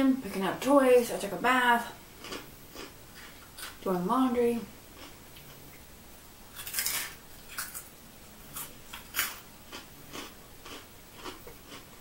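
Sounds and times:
person chewing crunchy chips: 0:02.2 - 0:03.8, 0:05.0 - 0:05.6, 0:06.5 - 0:12.0.

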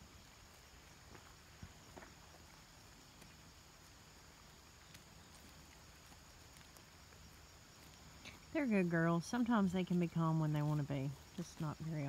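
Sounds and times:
soft clicks and taps of goats: 0:04.8 - 0:07.2.

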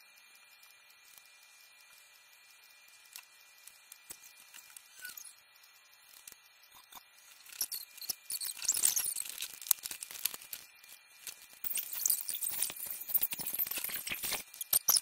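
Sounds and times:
scratching and crackling with clicks: 0:00.2 - 0:15.0.

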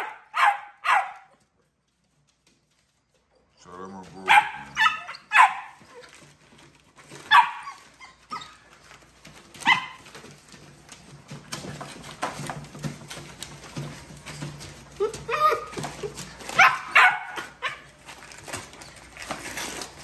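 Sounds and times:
puppies yapping: 0:04.1 - 0:19.8
newspaper crackling: 0:04.2 - 0:20.0.

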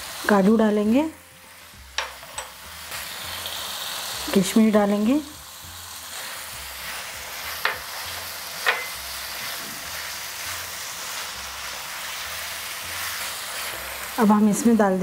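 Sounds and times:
food sizzling in a frying pan: 0:00.0 - 0:15.0
spatula stirring: 0:06.0 - 0:14.7.

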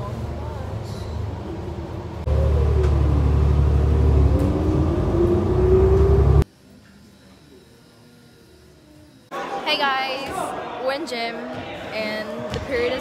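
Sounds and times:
bus engine rumble and whine: 0:00.0 - 0:06.5
quiet classroom hum: 0:00.0 - 0:09.6.

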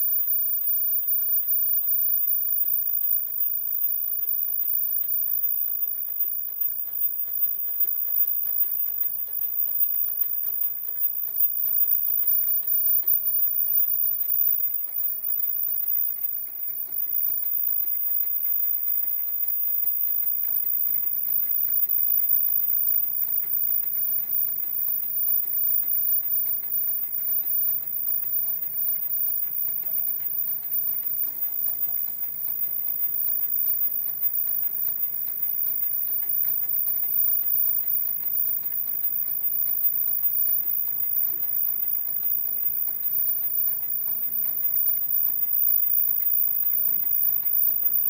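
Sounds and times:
faint steady whine: 0:00.0 - 0:48.0
machine clatter of rapid ticking: 0:00.0 - 0:48.0.

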